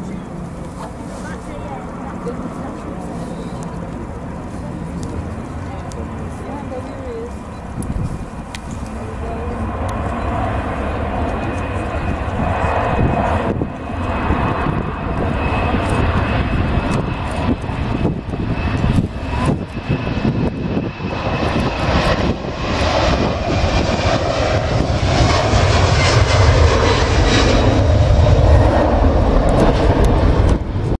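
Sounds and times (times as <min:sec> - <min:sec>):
jet engines roaring at takeoff: 0:00.0 - 0:31.0.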